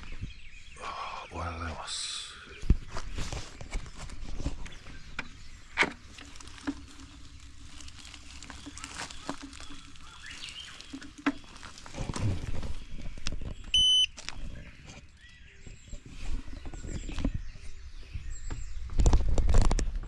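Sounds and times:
short electronic beep: 13.7s - 14.1s.

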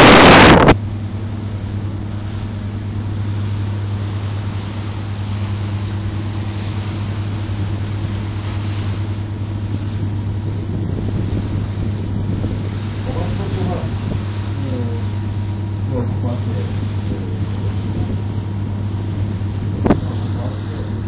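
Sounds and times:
loud burst of noise: 0.0s - 0.9s
boat engine droning: 0.0s - 21.0s
even hiss: 2.0s - 21.0s.

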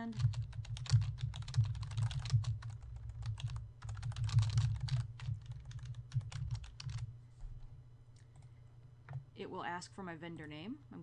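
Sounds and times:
typing on computer keyboard: 0.0s - 7.1s.

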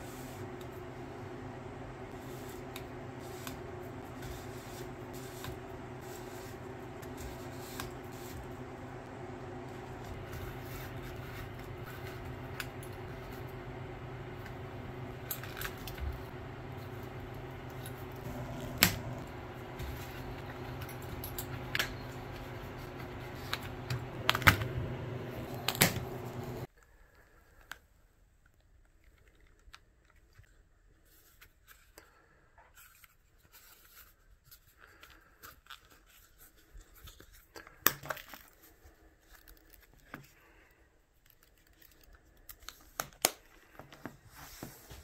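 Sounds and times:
box fan hum: 0.0s - 26.7s.

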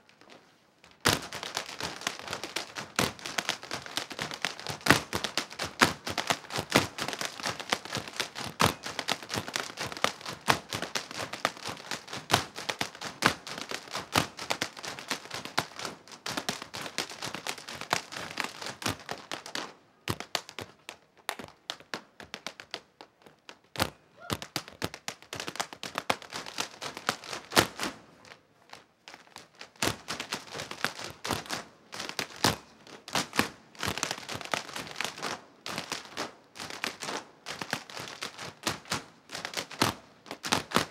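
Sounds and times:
hard shoes tapping on stage floor: 1.0s - 27.9s.

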